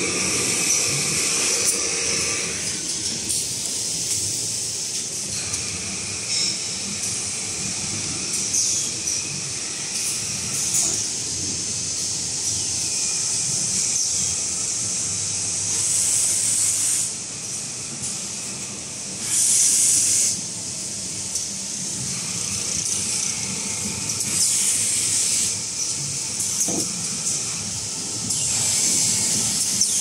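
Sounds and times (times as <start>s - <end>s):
machine hissing: 0.0s - 30.0s
machinery hum: 0.0s - 30.0s
hissing bursts: 19.2s - 20.5s.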